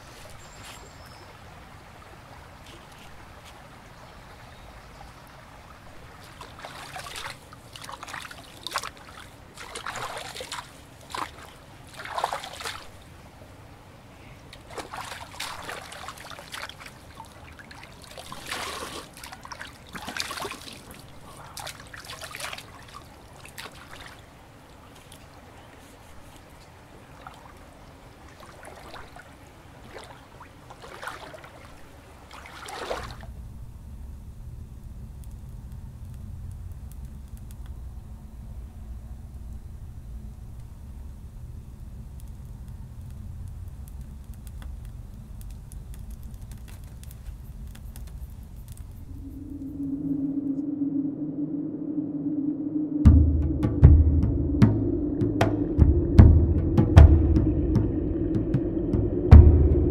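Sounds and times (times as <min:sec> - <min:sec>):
hands splashing in creek water: 0:06.2 - 0:13.1, 0:14.5 - 0:33.3.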